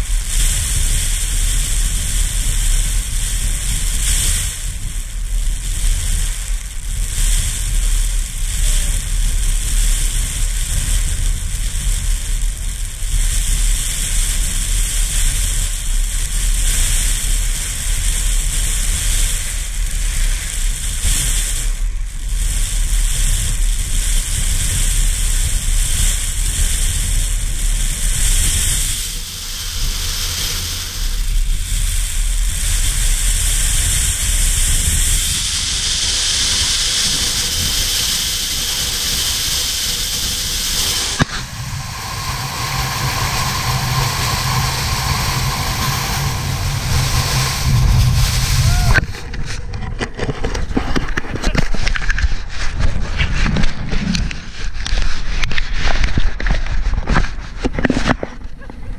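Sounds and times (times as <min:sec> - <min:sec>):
wind buffeting microphone: 0:00.0 - 0:58.9
wind-blown sand hiss: 0:00.0 - 0:58.9.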